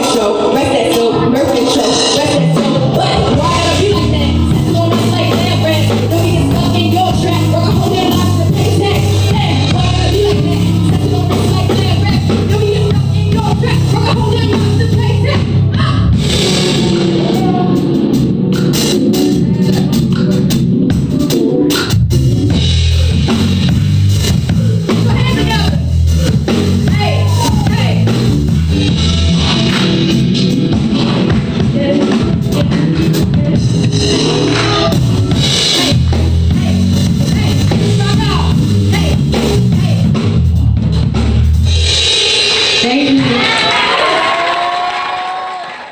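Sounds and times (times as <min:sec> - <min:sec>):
person singing: 0:00.0 - 0:20.5, 0:31.0 - 0:38.3
guitar: 0:00.0 - 0:41.8
electric bass: 0:00.0 - 0:43.4
live band playing: 0:00.0 - 0:45.1
drum kit: 0:00.0 - 0:45.4.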